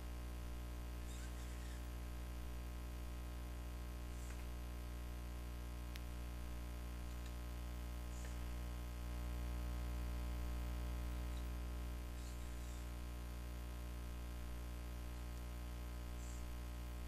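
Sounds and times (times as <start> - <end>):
low electrical hum: 0.0 - 17.0
faint clicks: 7.0 - 7.4.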